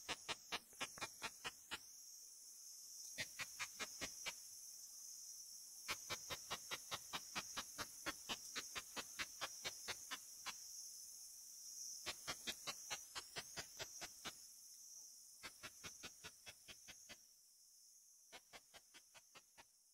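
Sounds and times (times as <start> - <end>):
katydid clicks through bat detector: 5.9 - 10.2, 12.1 - 14.4.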